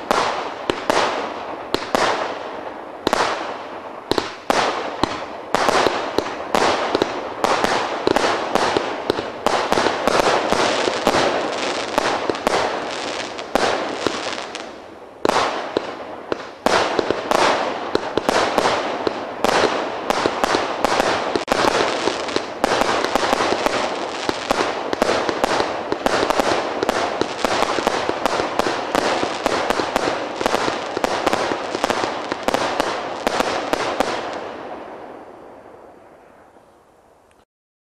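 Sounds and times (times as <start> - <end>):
fireworks launch bangs: 4.1 - 34.4.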